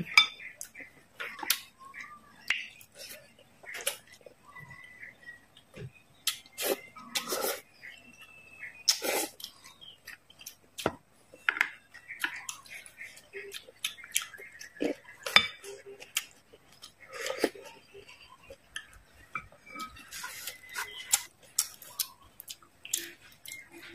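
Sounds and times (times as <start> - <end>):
chewing and mouth sounds: 12.2 - 23.9.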